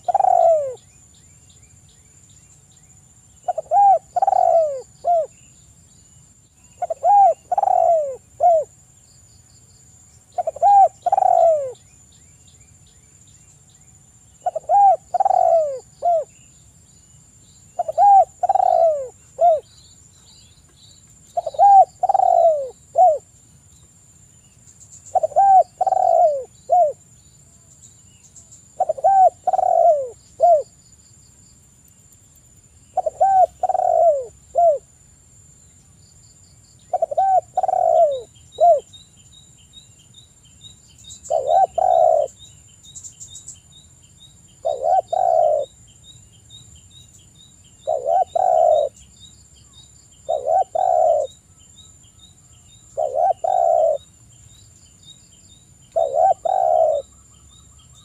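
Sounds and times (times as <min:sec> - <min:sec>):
dove cooing: 0:00.0 - 0:00.8, 0:03.4 - 0:05.4, 0:06.8 - 0:08.7, 0:10.4 - 0:11.8, 0:14.4 - 0:16.3, 0:17.8 - 0:19.7, 0:21.4 - 0:23.3, 0:25.1 - 0:27.0, 0:28.8 - 0:30.7, 0:33.0 - 0:34.9, 0:36.9 - 0:38.9, 0:41.3 - 0:42.4, 0:44.6 - 0:45.8, 0:47.8 - 0:49.0, 0:50.2 - 0:51.4, 0:53.0 - 0:54.1, 0:56.0 - 0:57.1.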